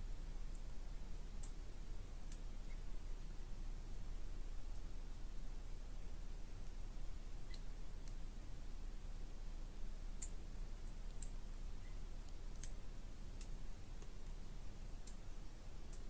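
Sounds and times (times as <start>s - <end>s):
sharp high-pitched ticks: 10.2s - 10.4s.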